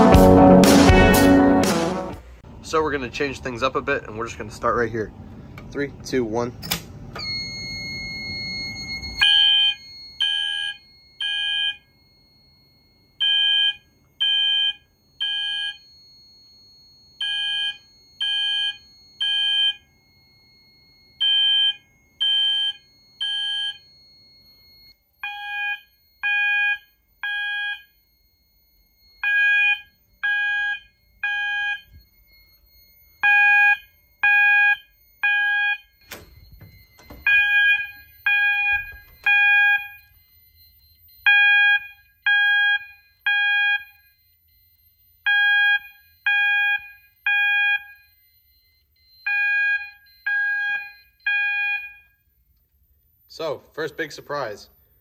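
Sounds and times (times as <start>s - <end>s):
fire alarm beeps: 7.1s - 55.0s
faint steady high tone: 22.8s - 26.2s, 26.8s - 33.2s, 51.9s - 55.0s.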